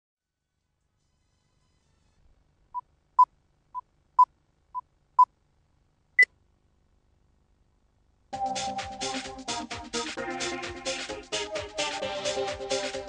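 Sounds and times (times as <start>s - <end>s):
electronic music with a beat: 8.4s - 13.0s.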